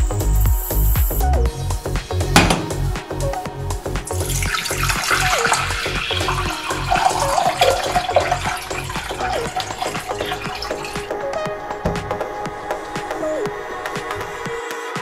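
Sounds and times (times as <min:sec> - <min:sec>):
background music with beat: 0:00.0 - 0:15.0
water pouring into metal pot: 0:04.2 - 0:13.5.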